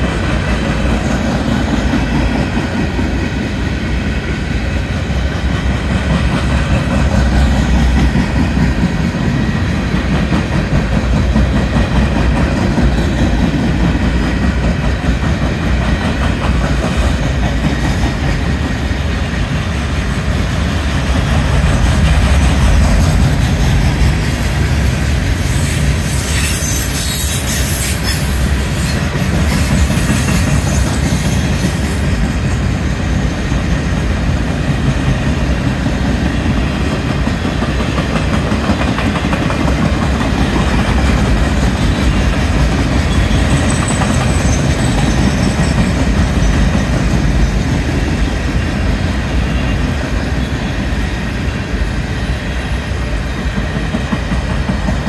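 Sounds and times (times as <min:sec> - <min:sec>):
freight train rumbling past: 0:00.0 - 0:55.0
wheels clacking over rail joints: 0:04.8 - 0:32.8, 0:33.5 - 0:48.9.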